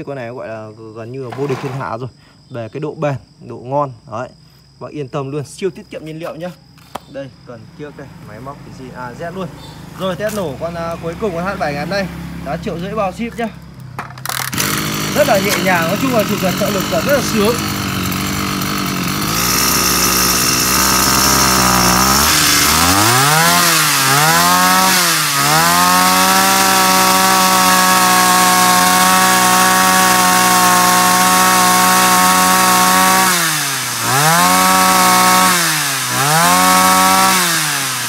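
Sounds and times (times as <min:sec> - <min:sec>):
two-stroke engine revving: 0:01.3 - 0:01.8, 0:08.3 - 0:38.0.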